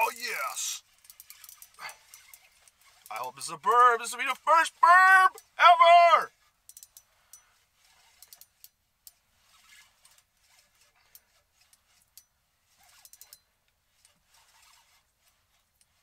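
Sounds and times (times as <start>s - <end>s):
fishing reel clicking: 0.9s - 3.2s, 6.7s - 9.9s, 10.5s - 13.4s.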